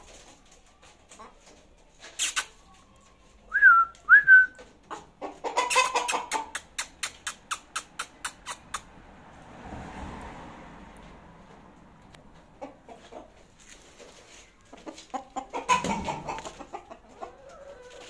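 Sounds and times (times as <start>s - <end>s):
chicken clucking: 0.0s - 9.0s, 11.4s - 18.0s
chicken whistle-like calls: 3.4s - 4.7s
soft rustle: 13.0s - 15.2s.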